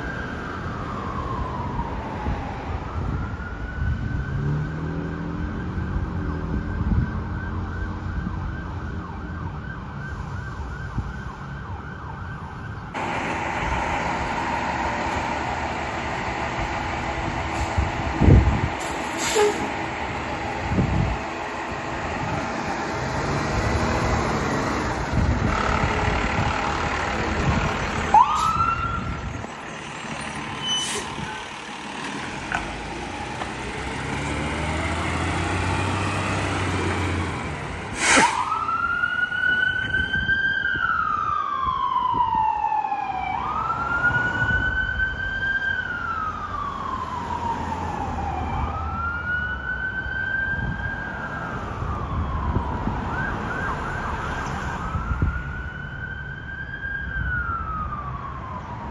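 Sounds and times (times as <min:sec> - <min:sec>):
siren whoop: 0:00.0 - 0:13.0, 0:27.4 - 0:29.3, 0:38.2 - 0:58.9
siren wailing: 0:00.0 - 0:29.9, 0:32.6 - 0:58.9
fire engine engine running: 0:06.0 - 0:58.9
short sharp horn blast: 0:19.1 - 0:19.7.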